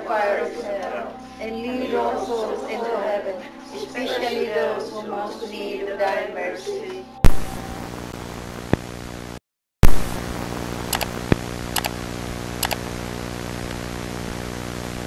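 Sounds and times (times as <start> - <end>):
electrical hum: 7.2 - 15.0
static hiss: 7.2 - 15.0
clicks and crackles: 12.6 - 12.9.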